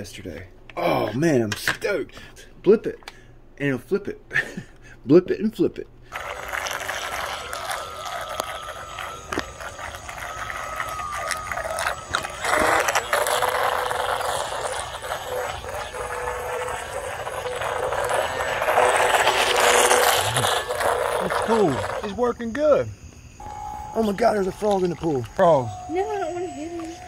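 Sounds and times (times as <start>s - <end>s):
rc speedboat motor whining: 6.1s - 22.2s, 23.4s - 27.0s
water hissing: 6.1s - 22.2s.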